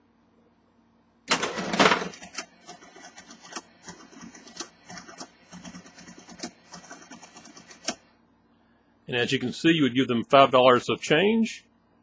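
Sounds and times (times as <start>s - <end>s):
cash drawer springing open: 1.3s - 3.6s
receipt printer clicking: 1.3s - 8.0s.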